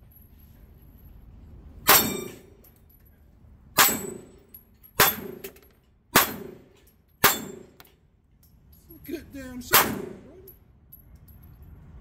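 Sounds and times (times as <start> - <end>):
pistol shots: 1.8 - 2.5, 3.8 - 4.4, 5.0 - 5.5, 6.1 - 7.8, 9.7 - 10.3
steel targets clanging: 1.8 - 3.0, 3.8 - 8.0.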